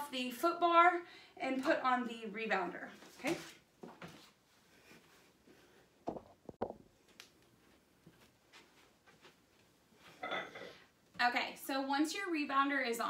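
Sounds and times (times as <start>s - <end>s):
quiet shuffling: 2.9s - 10.2s
faint knocks and clunks: 6.0s - 6.8s.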